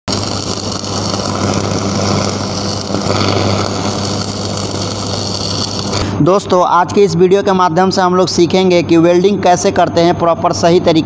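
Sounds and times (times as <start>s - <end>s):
welding arc crackling and sizzling: 0.0s - 8.6s
steady low buzz: 0.0s - 11.0s.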